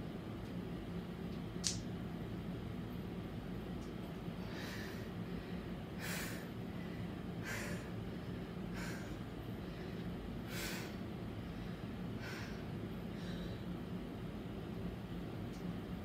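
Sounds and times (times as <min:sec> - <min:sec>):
steady low hum: 0:00.0 - 0:16.0
person breathing forcefully: 0:04.4 - 0:13.9.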